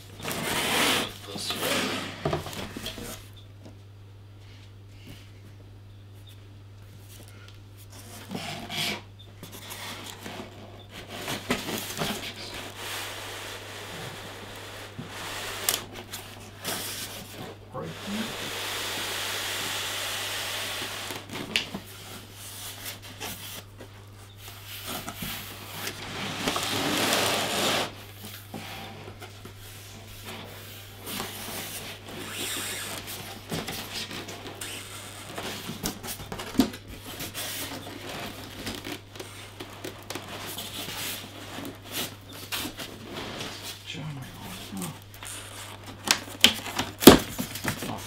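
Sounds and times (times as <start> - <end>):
foam and cardboard scraping: 0.2 - 3.3, 7.8 - 48.0.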